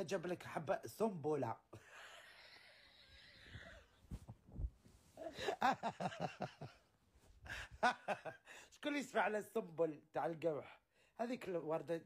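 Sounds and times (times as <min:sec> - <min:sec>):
low thumps: 0:04.1 - 0:05.0
woman laughing: 0:05.2 - 0:06.8.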